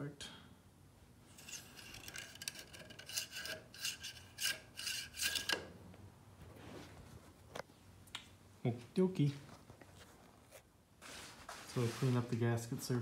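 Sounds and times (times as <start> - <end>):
short scraping rasping strokes: 1.3 - 5.6.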